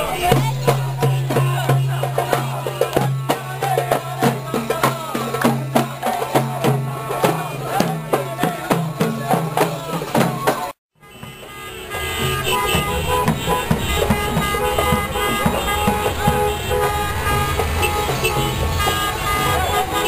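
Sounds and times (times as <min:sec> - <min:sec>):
marchers chanting and singing: 0:00.0 - 0:10.8, 0:12.2 - 0:20.0
frame drum beating: 0:12.2 - 0:19.7.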